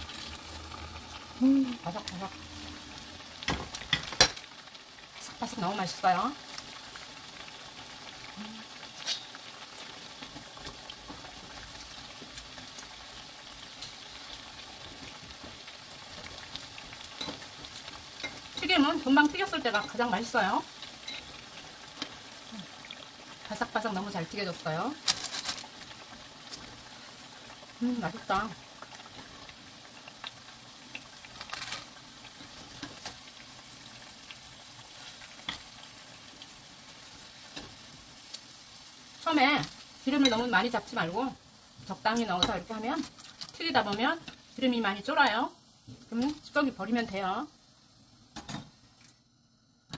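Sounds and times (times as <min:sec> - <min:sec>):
food deep-frying in oil: 0:00.0 - 0:49.9.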